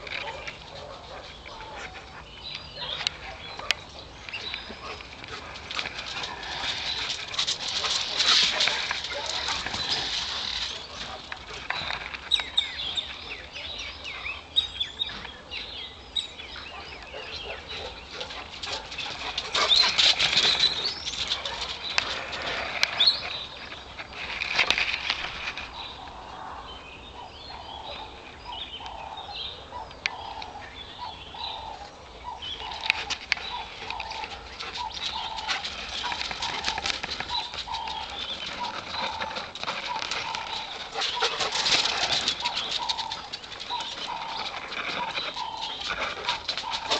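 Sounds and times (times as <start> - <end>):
dog running on bare earth: 0.0 - 13.9, 16.6 - 25.9, 32.4 - 46.9
small birds chirping: 0.0 - 46.9.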